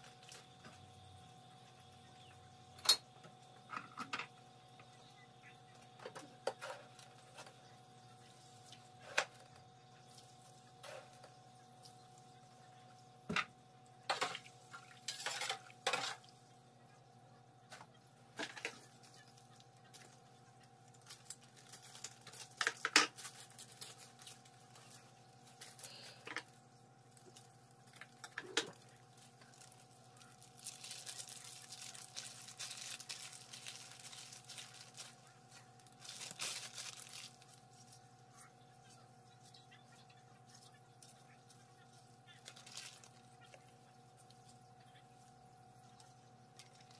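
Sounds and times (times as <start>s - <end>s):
plastic bags crinkling and tearing: 20.8s - 26.2s, 27.1s - 38.0s, 42.4s - 43.3s.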